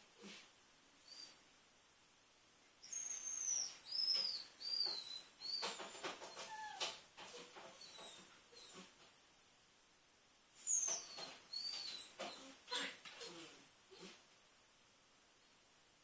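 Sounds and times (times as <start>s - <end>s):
dog whining: 1.0s - 1.4s, 2.8s - 9.0s, 10.6s - 14.2s.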